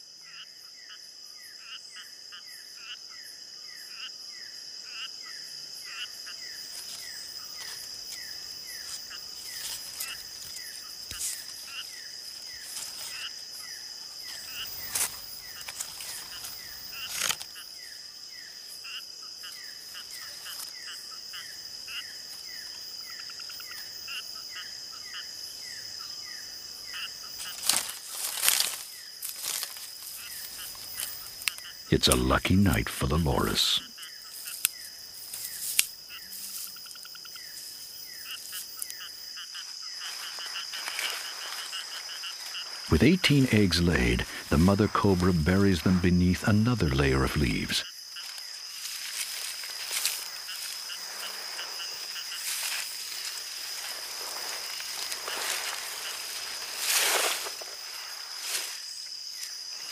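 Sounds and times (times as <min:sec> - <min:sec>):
insect drone: 0:00.0 - 0:59.9
rustles and snaps: 0:14.3 - 0:17.5, 0:27.4 - 0:31.6, 0:34.4 - 0:36.7, 0:40.1 - 0:42.6.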